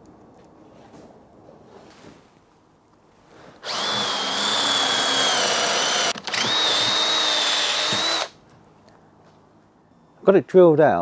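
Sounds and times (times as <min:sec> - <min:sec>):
cordless drill whining into wood: 0:03.6 - 0:08.4.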